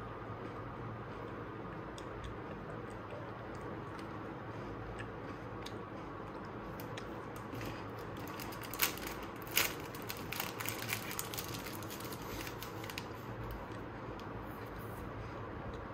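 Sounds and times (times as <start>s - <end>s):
plastic wrapper crinkling: 6.8s - 13.2s.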